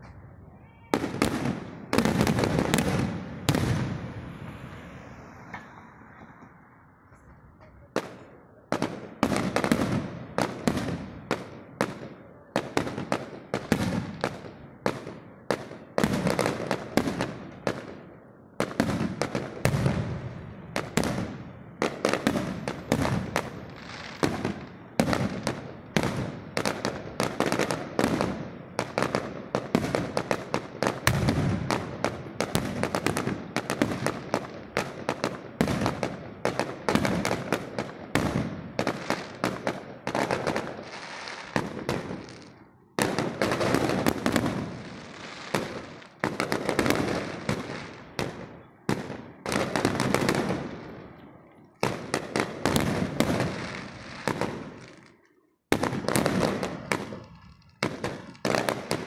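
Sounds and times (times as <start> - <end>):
fireworks bangs and crackling: 0.0 - 59.0.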